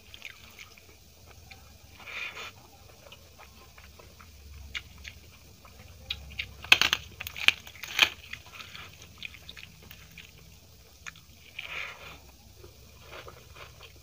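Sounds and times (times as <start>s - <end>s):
chewing: 0.0s - 14.0s
crunchy clicks: 3.8s - 10.3s.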